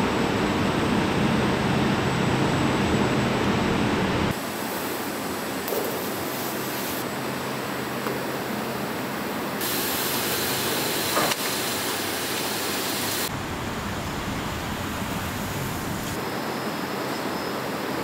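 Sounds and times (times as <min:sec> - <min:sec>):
machinery hum: 0:00.0 - 0:18.0
bright hiss: 0:09.6 - 0:13.3.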